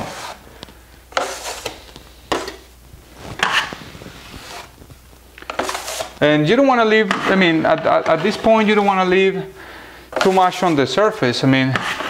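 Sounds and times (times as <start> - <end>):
taping knife scraping plaster wall: 0.0 - 0.4, 1.1 - 2.7, 3.3 - 4.8, 5.4 - 6.2, 10.1 - 12.0.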